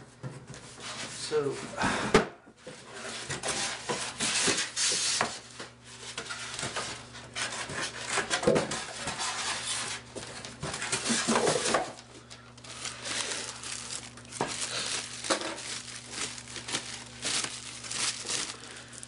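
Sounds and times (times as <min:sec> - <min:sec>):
plastic wrap and foam rustling: 0:02.9 - 0:19.0.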